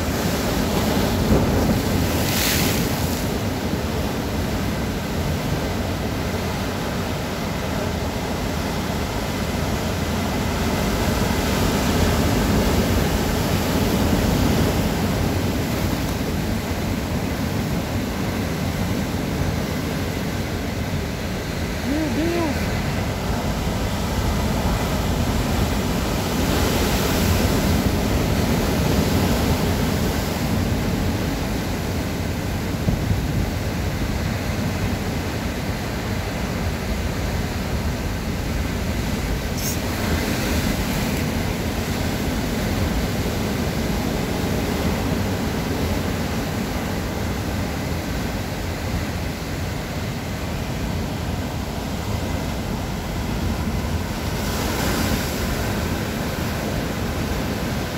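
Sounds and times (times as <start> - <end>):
waves breaking over rocks: 0.0 - 8.1, 36.8 - 49.6.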